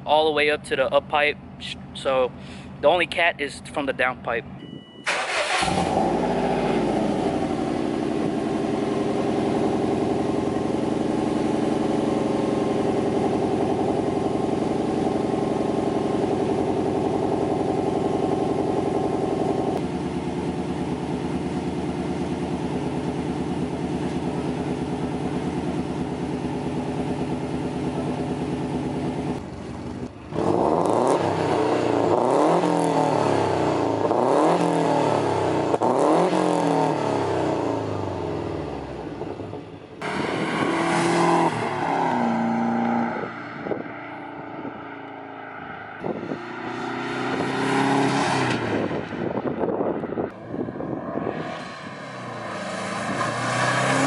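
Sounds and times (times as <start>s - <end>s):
car engine idling: 0.0s - 32.3s, 37.4s - 40.6s
engine revving: 5.0s - 21.3s, 22.4s - 54.0s.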